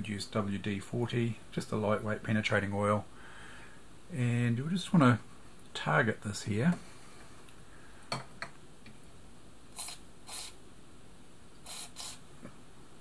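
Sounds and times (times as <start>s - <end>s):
aerosol spray hisses: 9.7s - 10.6s, 11.6s - 12.3s.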